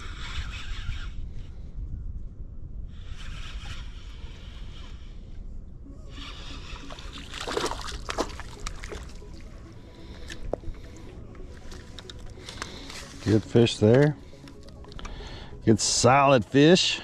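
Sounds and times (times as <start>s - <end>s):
fish splashing and thrashing in water: 6.7s - 9.5s.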